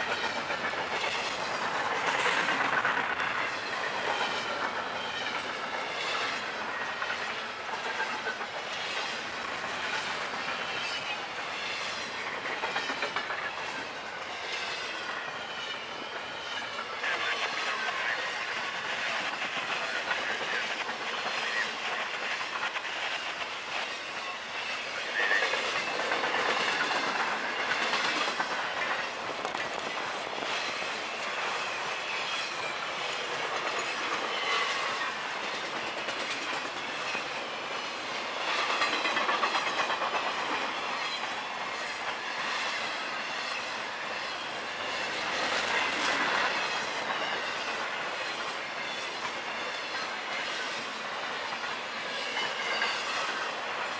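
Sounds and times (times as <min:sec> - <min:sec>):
freight train wheels rumbling: 0:00.0 - 0:53.9
wheels clacking over rail joints: 0:00.0 - 0:53.9.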